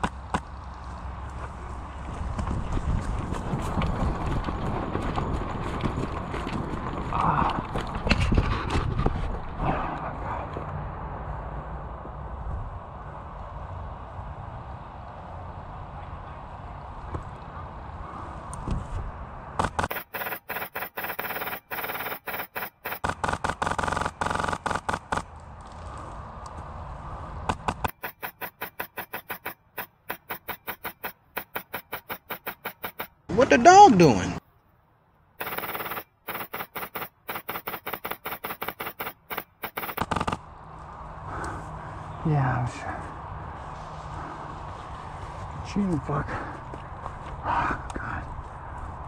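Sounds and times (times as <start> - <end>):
airsoft gun firing bursts: 19.6 - 25.3, 27.5 - 33.2, 35.4 - 40.4.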